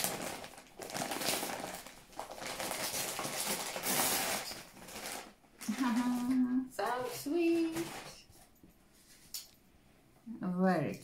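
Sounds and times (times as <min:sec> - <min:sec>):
paper tearing: 0:00.0 - 0:05.9
paper rustling and crinkling: 0:00.0 - 0:09.3.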